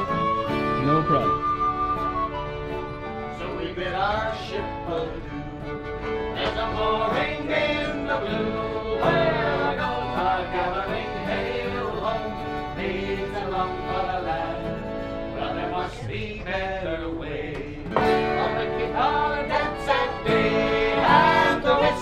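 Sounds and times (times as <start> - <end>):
fiddle: 0.0 - 15.8
acoustic guitar: 0.0 - 22.0.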